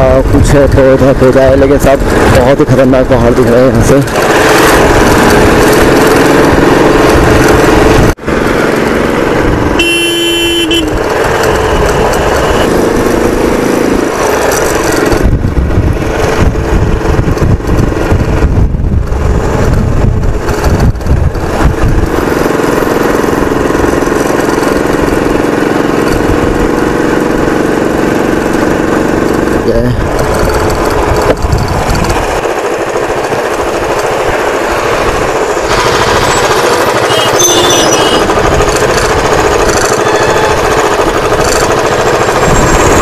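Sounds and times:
motorcycle engine running: 0.0 - 43.0
wind rushing over microphone: 4.0 - 9.8, 10.7 - 25.3, 29.4 - 37.0, 40.5 - 43.0
vehicle horn: 9.8 - 11.0, 36.9 - 38.3, 40.0 - 40.8.

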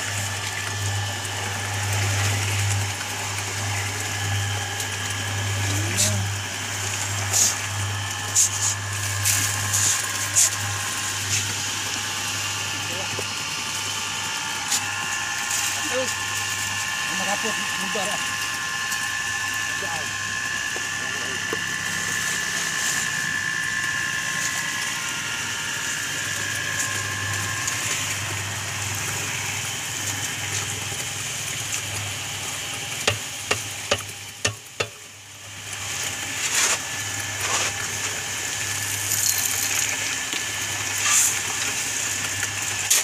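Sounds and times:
concrete mixer motor humming: 0.0 - 43.0.

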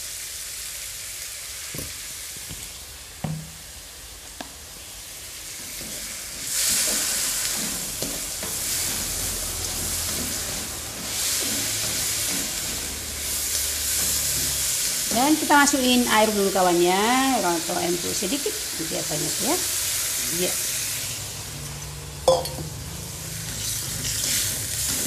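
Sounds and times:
food sizzling in a wok: 0.0 - 25.0
spatula stirring and scraping pan: 5.1 - 21.8, 22.7 - 25.0
spatula tapping against wok: 21.7 - 22.8.

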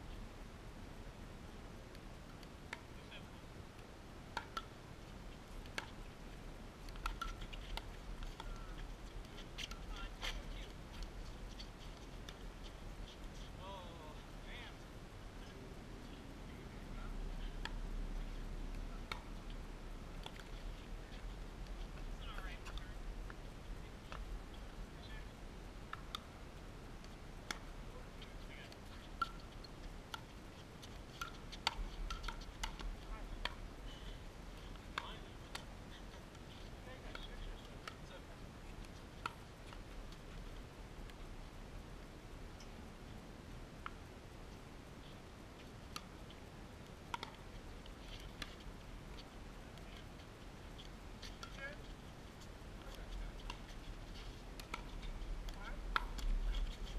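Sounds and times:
paddles hitting plastic ball: 52.8 - 56.9.

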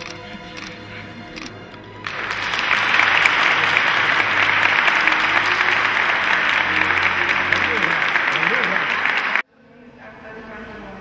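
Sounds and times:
soft background music: 0.0 - 3.1
congregation applauding: 2.0 - 9.4.

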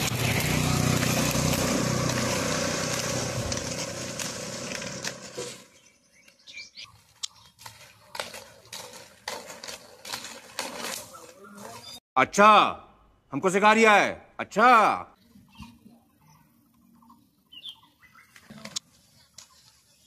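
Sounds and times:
motorcycle passing by: 0.0 - 5.8
bird chirp: 5.6 - 7.6, 11.7 - 12.0, 15.3 - 18.7.

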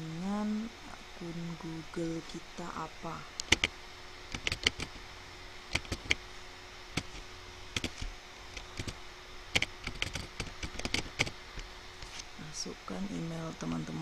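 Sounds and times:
keyboard key clicks: 3.4 - 3.7, 4.4 - 4.9.

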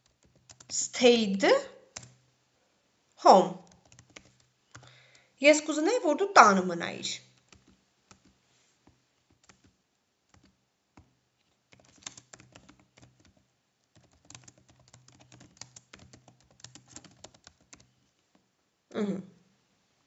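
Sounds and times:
typing on computer keyboard: 0.0 - 0.8, 1.9 - 2.2, 3.6 - 4.9, 7.3 - 8.4, 9.3 - 11.1, 11.7 - 18.0.

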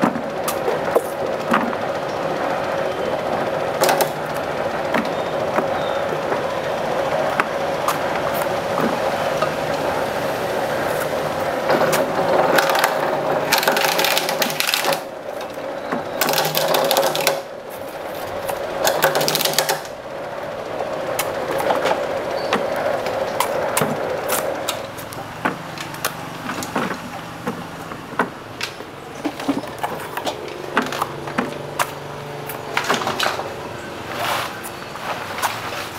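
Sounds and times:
sharp clicks and knocks: 0.0 - 2.3, 3.3 - 9.9, 11.0 - 20.0, 20.8 - 34.8
scraping: 20.8 - 35.9.

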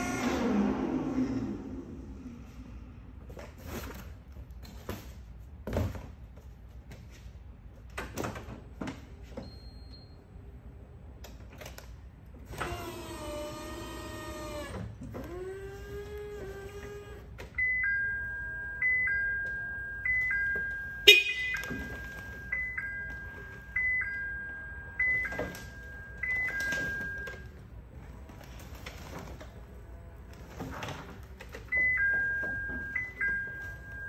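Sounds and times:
forklift motor whine: 0.0 - 2.5, 12.5 - 20.9
two-tone warning chime: 17.6 - 27.5, 31.7 - 34.0.

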